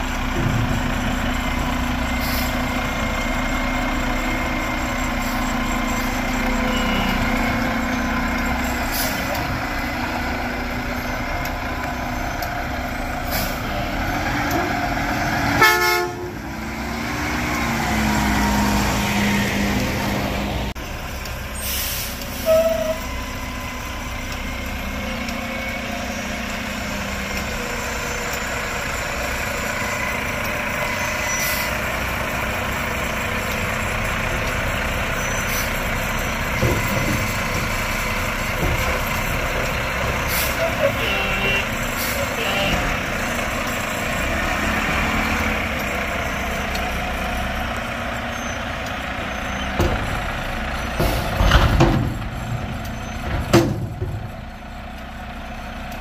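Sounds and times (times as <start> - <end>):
garbage truck diesel engine: 0.0 - 56.0
hydraulics whining: 0.0 - 56.0
air brake blast: 2.2 - 2.6, 13.3 - 13.7, 21.6 - 23.0.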